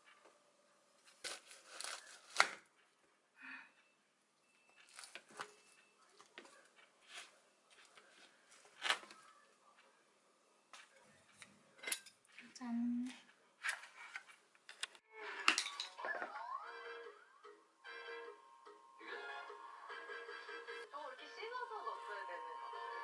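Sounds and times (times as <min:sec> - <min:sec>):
knife crunching through squash rind: 0:01.0 - 0:02.6.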